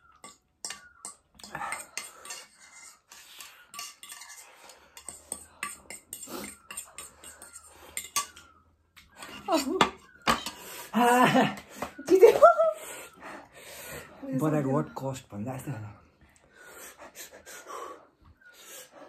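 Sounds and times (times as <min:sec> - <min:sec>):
utensils clinking against bowl: 0:00.0 - 0:10.7.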